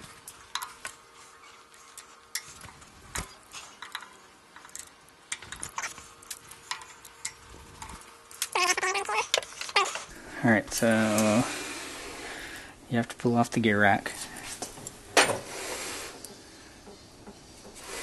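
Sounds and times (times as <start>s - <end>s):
faint steady hum: 0.0s - 18.0s
metal tools clicking and clinking: 3.6s - 8.6s.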